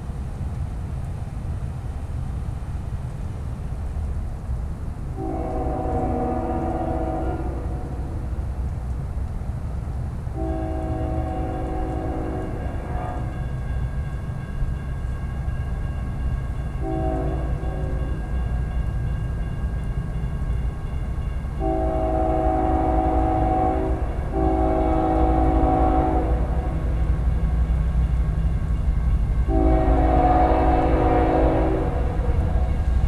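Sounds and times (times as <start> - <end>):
train rumble: 0.0 - 33.0
locomotive air horn chord: 5.2 - 8.3, 10.4 - 13.4, 16.8 - 18.4, 21.6 - 27.1, 29.4 - 32.8.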